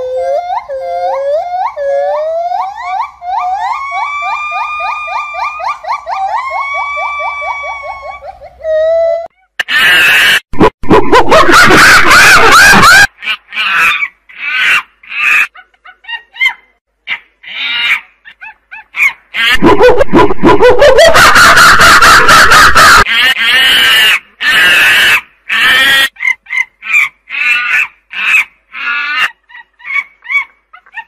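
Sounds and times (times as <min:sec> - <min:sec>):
monkey long rising call: 0:00.0 - 0:13.0
monkeys squeaking and squealing: 0:00.0 - 0:25.1, 0:29.2 - 0:31.0.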